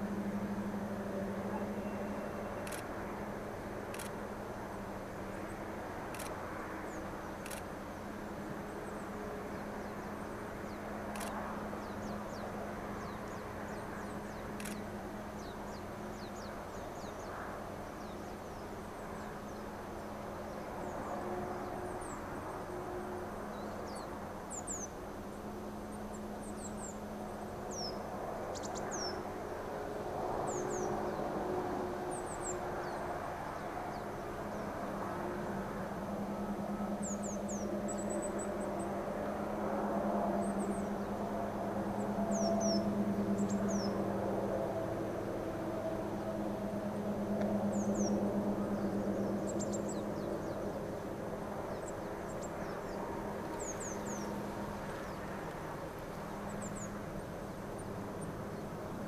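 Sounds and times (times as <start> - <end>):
distant locomotive engine drone: 0.0 - 59.0
sharp clicks: 3.9 - 4.2, 14.6 - 14.9
small birds chirping: 27.7 - 29.2, 51.7 - 57.9.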